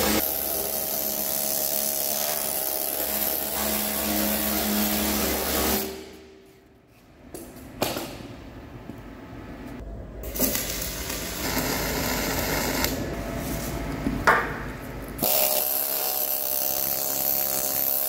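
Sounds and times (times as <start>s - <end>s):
welding arc crackling and hissing: 0.0s - 6.0s, 10.2s - 13.2s, 15.2s - 18.0s.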